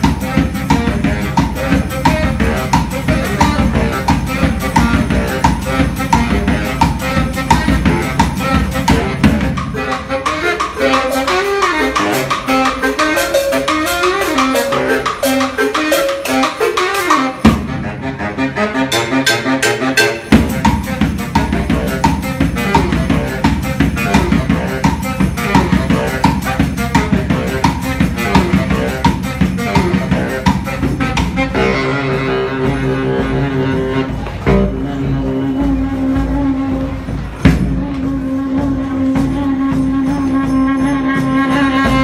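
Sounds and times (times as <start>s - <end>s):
marching bass drum beat: 0.0s - 11.0s, 20.2s - 40.5s
baritone saxophone: 0.0s - 42.0s.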